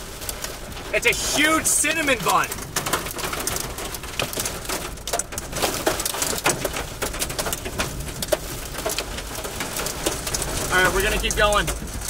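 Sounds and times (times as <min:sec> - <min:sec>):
rain and hail hitting car: 0:00.0 - 0:12.0.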